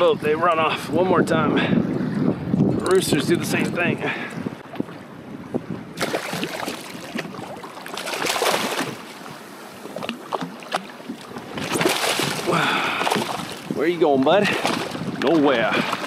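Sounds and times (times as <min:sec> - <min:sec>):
water sloshing against hull: 0:00.0 - 0:16.0
wind on microphone: 0:00.0 - 0:16.0
fish splashing at surface: 0:06.0 - 0:09.1, 0:11.6 - 0:13.7.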